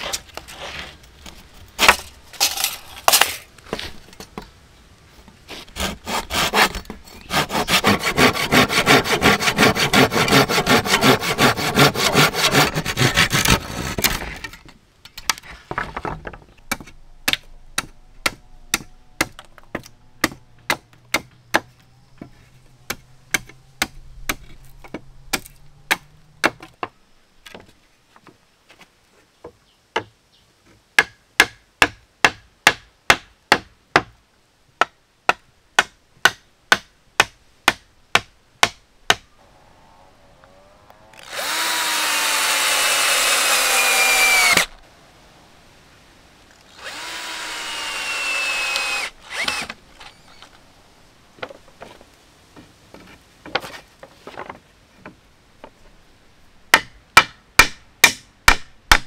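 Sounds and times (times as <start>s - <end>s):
power drill running: 41.2s - 44.7s, 46.7s - 50.2s.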